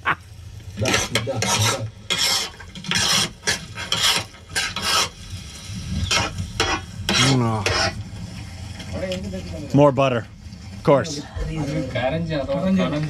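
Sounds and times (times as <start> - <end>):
food sizzling: 0.0 - 13.0
utensil scraping food in a pan: 0.8 - 9.6.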